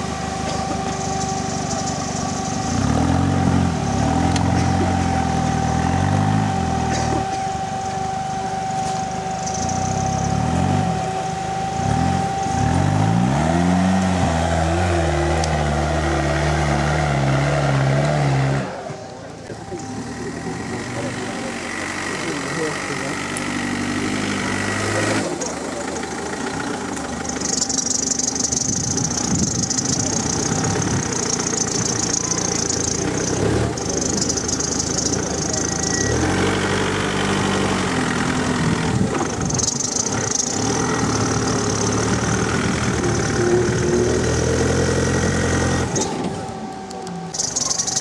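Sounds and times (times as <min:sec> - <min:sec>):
off-road vehicle engine revving: 0:00.0 - 0:48.0.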